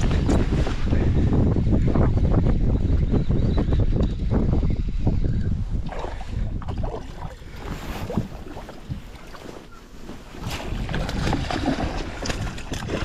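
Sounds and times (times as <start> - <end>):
wind buffeting microphone: 0.0 - 13.0
water lapping: 5.8 - 13.0
fish thrashing and splashing: 10.4 - 13.0.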